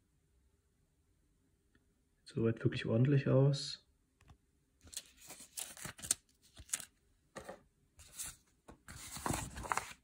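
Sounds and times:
paper rustling: 4.8 - 10.0.

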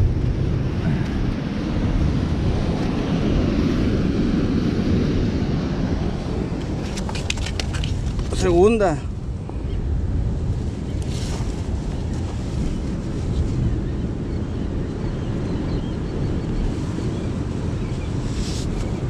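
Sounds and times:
surf washing on rocks: 0.0 - 9.1
wind buffeting microphone: 0.0 - 19.0.

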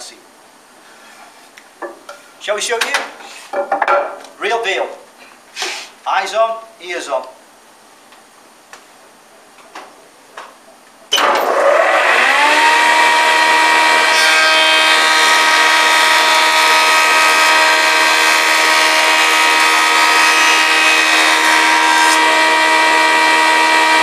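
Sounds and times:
planer whining: 11.2 - 24.0.

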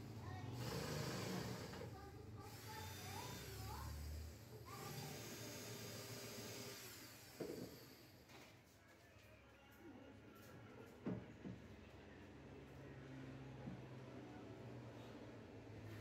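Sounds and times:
cordless drill driving screws: 2.4 - 3.7, 4.7 - 7.9.

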